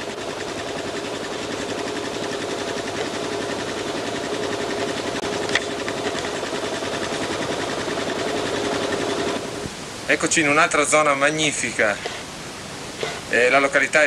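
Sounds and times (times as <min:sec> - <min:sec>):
motorcycle engine running: 0:00.0 - 0:09.6.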